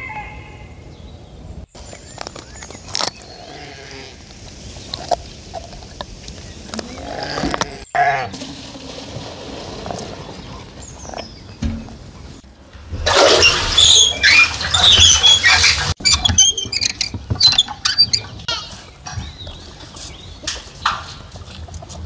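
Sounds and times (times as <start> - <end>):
bucket splashing in well water: 8.2 - 10.9, 12.8 - 16.0.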